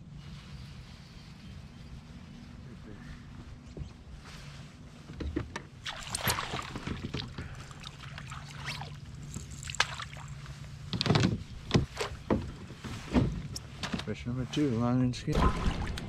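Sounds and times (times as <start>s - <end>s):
fish splashing: 5.8s - 10.5s.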